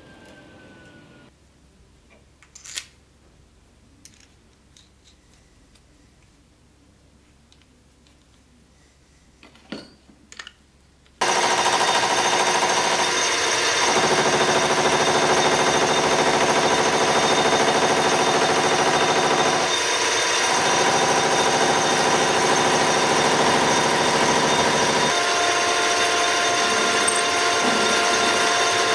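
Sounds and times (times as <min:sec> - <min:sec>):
metal lathe running: 0:11.2 - 0:28.9.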